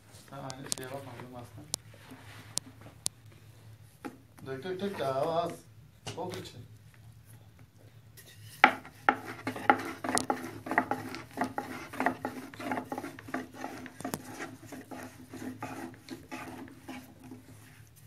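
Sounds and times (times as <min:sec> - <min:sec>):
hands rubbing and scraping: 0:08.5 - 0:18.0.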